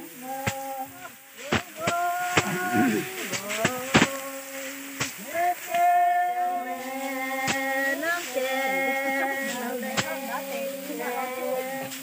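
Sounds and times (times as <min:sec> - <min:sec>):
voices singing held notes: 0:00.0 - 0:12.0.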